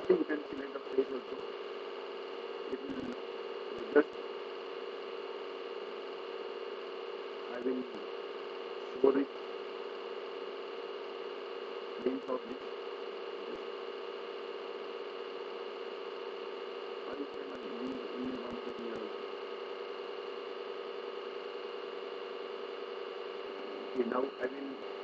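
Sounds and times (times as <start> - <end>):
electrical hum and hiss: 0.0 - 25.0
low murmurs: 17.0 - 19.4.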